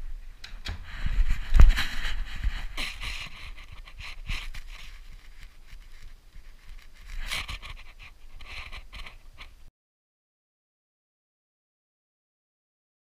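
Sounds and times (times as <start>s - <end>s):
low bumps against camera: 0.7s - 5.2s
dog sniffing and breathing: 0.8s - 6.0s, 7.0s - 9.6s.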